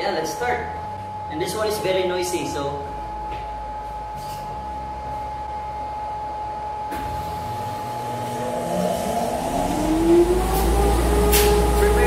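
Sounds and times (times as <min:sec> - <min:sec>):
electric motor whine spinning up: 0:06.9 - 0:12.0.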